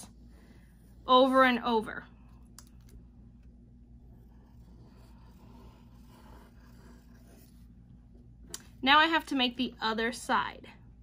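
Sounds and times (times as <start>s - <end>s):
steady low hum: 0.0s - 11.0s
pencil scratching on paper: 4.0s - 8.3s.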